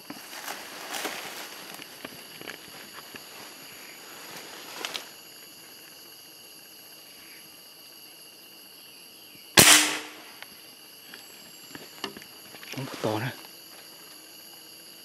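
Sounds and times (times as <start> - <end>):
insect chorus: 0.0 - 15.0
faint scuffle of clicks: 4.4 - 5.1.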